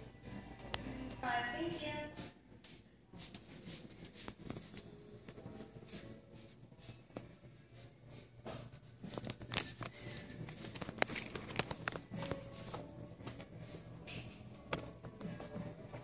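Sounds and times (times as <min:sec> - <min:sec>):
phone handling clicks and rustling: 0:09.1 - 0:12.4.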